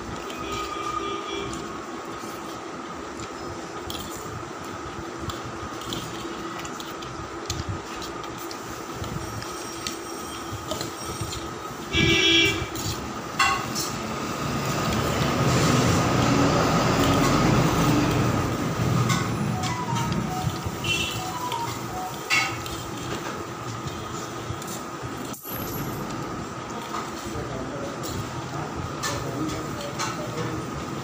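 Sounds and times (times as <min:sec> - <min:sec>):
low rumble of passing traffic: 0:00.0 - 0:31.0
loud horn blaring: 0:00.3 - 0:01.6, 0:11.9 - 0:12.8, 0:20.7 - 0:21.4.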